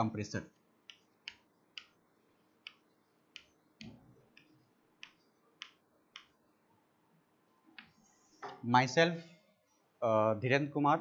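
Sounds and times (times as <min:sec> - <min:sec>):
chalk tapping on blackboard: 0:00.8 - 0:06.4.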